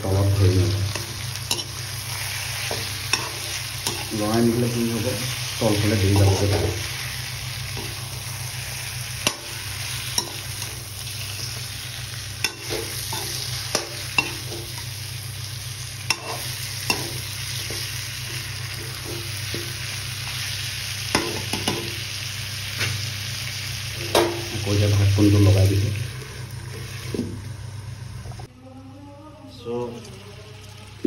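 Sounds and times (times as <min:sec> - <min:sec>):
meat sizzling in a wok: 0:00.0 - 0:28.2
steady low hum: 0:00.0 - 0:31.0
spatula scraping a pan: 0:16.1 - 0:20.5.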